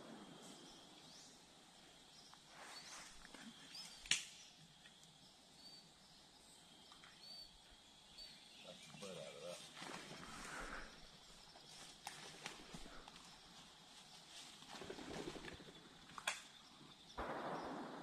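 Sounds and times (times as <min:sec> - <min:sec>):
sharp crack: 0:04.0 - 0:04.4, 0:17.2 - 0:18.0.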